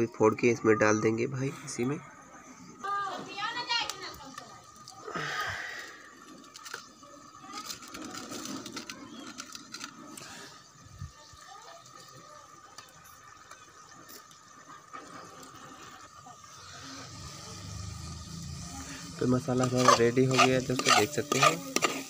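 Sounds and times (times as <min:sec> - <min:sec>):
sizzling and bubbling in pot: 0:06.0 - 0:22.0.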